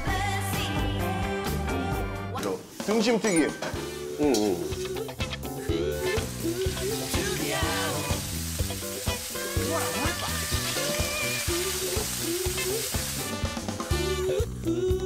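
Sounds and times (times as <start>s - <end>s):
background music: 0.0s - 15.0s
food deep-frying in oil: 5.9s - 14.3s.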